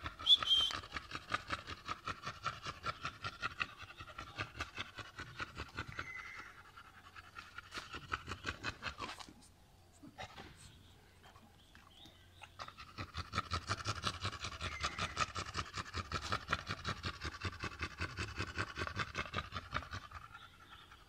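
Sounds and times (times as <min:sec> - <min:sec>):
dog panting: 0:00.0 - 0:21.0.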